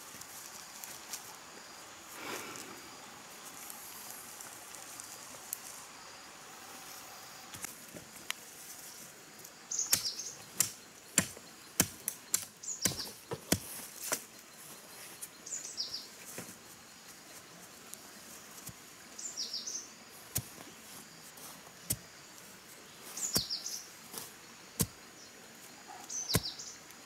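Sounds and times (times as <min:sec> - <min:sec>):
bird chirps: 0:09.7 - 0:10.9, 0:23.1 - 0:23.9, 0:25.2 - 0:26.8.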